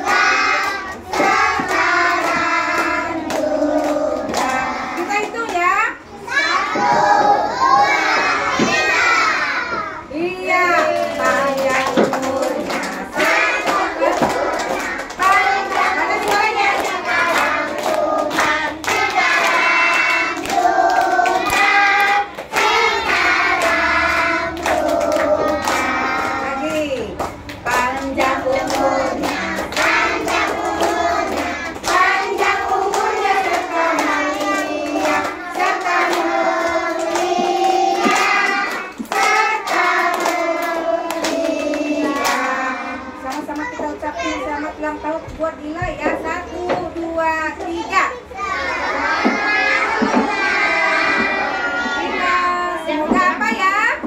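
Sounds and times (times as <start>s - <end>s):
hand-clapping in time: 0.0s - 5.6s, 10.7s - 42.6s
children and adults singing: 0.0s - 54.0s.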